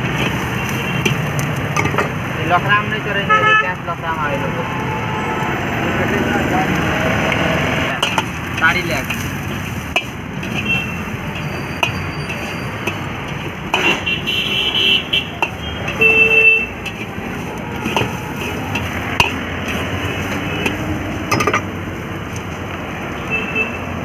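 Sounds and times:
ladle scraping a wok: 0.0s - 2.2s, 7.9s - 22.6s
street traffic: 0.0s - 24.0s.

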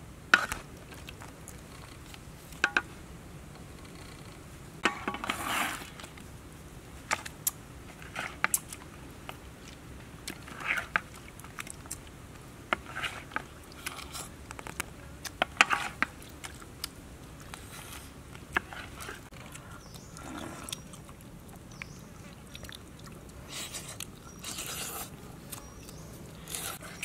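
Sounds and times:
crunching shells while eating: 12.7s - 27.0s.

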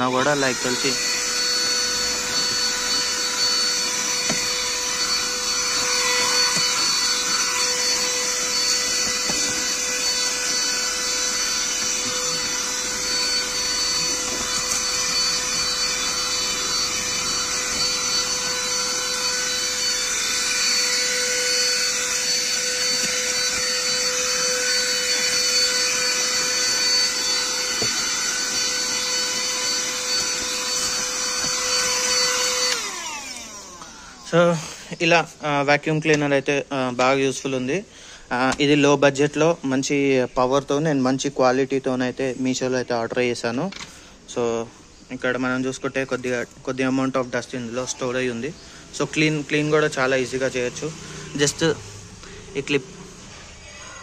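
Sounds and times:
vacuum nozzle on rubber mat: 0.0s - 36.3s
handheld vacuum cleaner running: 0.0s - 40.8s, 45.2s - 54.0s.

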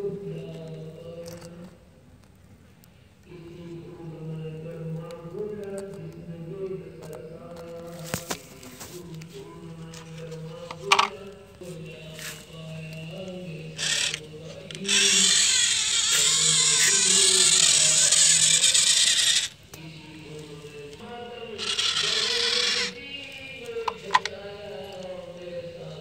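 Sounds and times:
small electric motor whirring: 13.3s - 19.6s, 21.6s - 23.0s.

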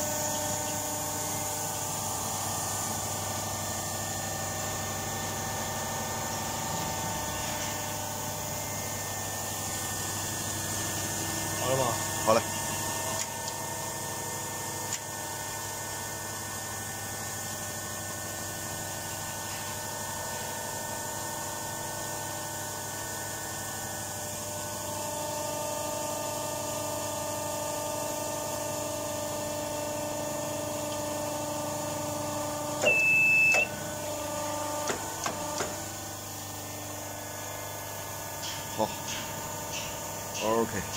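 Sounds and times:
crimping machine humming: 0.0s - 15.4s, 30.4s - 37.6s
short high beep: 32.8s - 33.7s.

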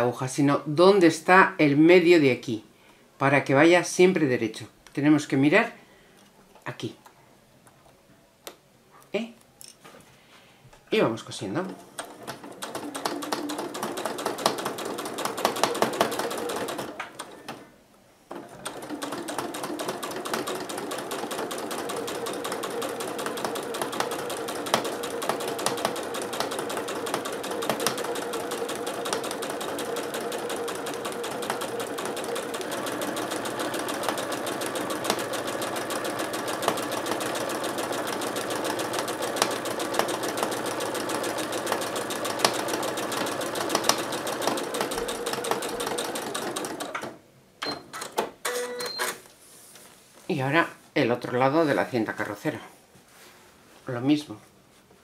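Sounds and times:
sewing machine stitching: 11.6s - 17.7s, 18.3s - 47.2s.

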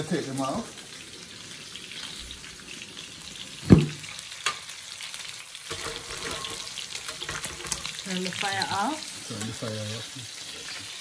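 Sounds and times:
chicken sizzling in oil: 0.0s - 11.0s
loud knock: 3.7s - 4.0s.

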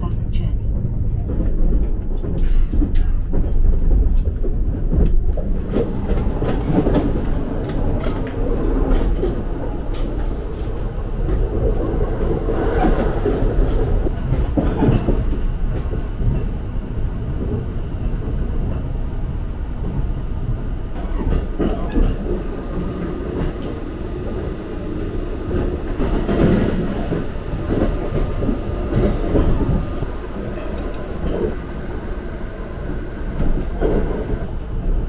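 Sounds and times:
train wheels rumbling on rails: 0.0s - 35.0s
train wheel clicks: 21.0s - 31.7s.

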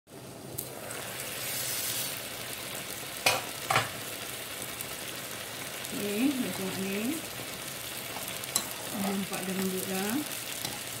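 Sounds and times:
broth boiling and bubbling: 0.1s - 11.0s
metal pot lid clanks: 3.2s - 3.9s.

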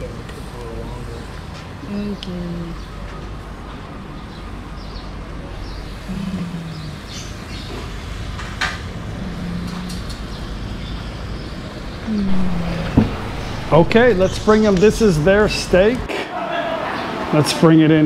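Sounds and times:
street traffic rumble: 0.0s - 16.3s
brief low hums: 12.1s - 16.1s.

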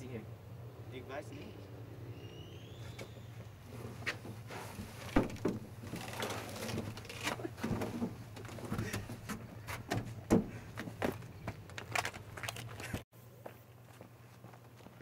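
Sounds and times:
knocks and bumps in truck bed: 4.0s - 5.9s, 6.7s - 11.2s.

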